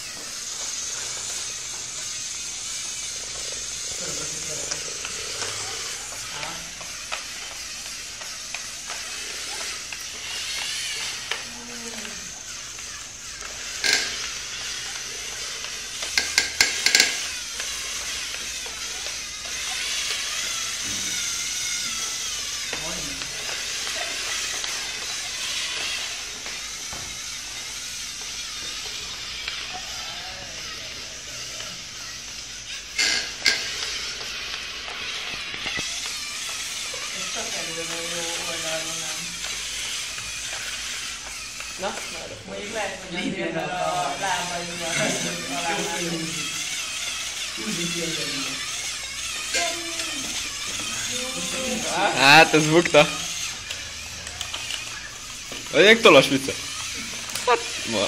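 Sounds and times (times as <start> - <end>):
servo motors whirring: 0.0 - 58.0
plastic clacks: 9.8 - 19.6.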